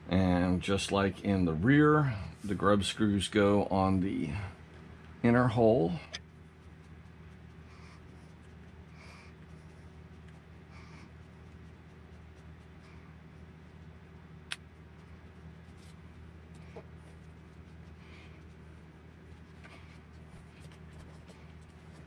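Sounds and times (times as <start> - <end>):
steady low hum: 0.0 - 22.0
faint soft scratching: 15.0 - 22.0.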